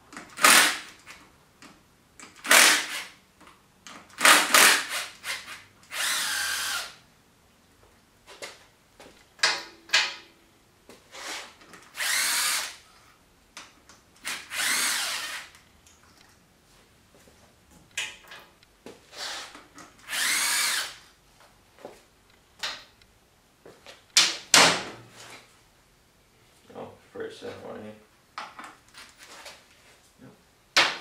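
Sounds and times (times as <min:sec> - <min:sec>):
power drill motor whine: 0:04.3 - 0:07.0, 0:12.0 - 0:12.8, 0:14.2 - 0:15.5, 0:20.0 - 0:21.0.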